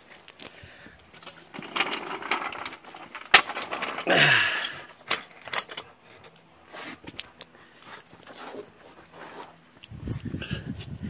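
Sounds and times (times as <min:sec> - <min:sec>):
floor jack rolling on concrete: 0:01.2 - 0:06.4
metal rattles and clicks: 0:01.2 - 0:06.5.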